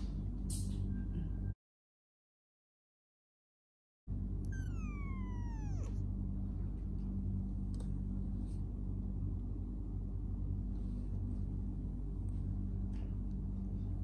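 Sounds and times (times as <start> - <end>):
kitten meowing: 4.4 - 6.0
kittens purring: 4.5 - 6.2.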